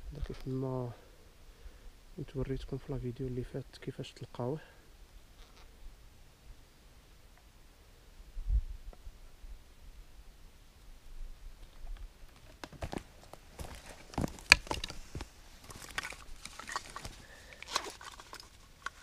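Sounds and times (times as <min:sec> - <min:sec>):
rustles on dry forest litter: 0:12.0 - 0:19.0.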